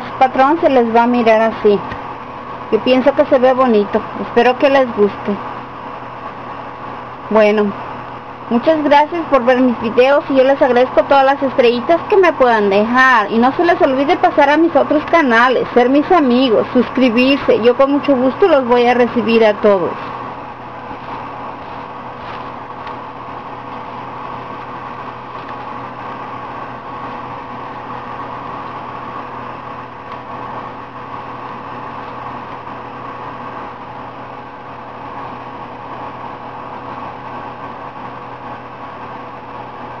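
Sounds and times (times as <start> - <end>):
machine hum: 0.0 - 40.0.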